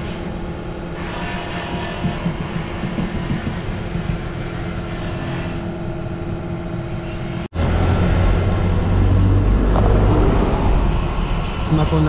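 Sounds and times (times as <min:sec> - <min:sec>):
workshop equipment drone: 0:00.0 - 0:12.0
deep loud hum: 0:05.8 - 0:12.0.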